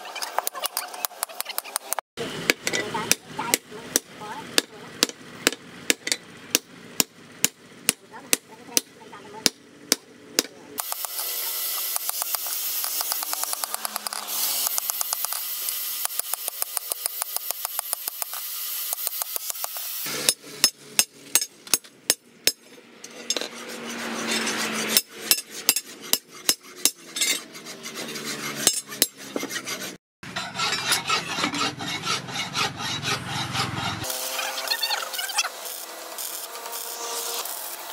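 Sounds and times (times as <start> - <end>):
sharp metal knocks: 2.5 - 11.1
rasping on metal blade: 10.8 - 21.5, 22.5 - 37.9.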